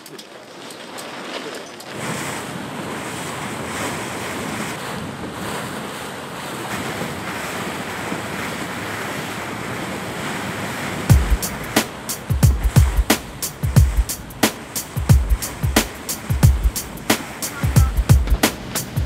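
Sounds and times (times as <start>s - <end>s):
water rushing past a boat hull: 0.0s - 19.0s
wind buffeting the microphone: 1.8s - 19.0s
heavy music drum beat: 11.1s - 19.0s.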